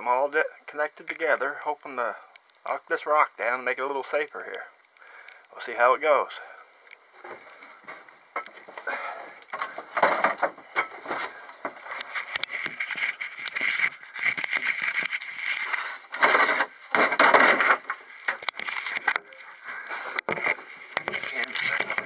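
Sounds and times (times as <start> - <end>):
camera rubbing and knocking: 9.6 - 22.0.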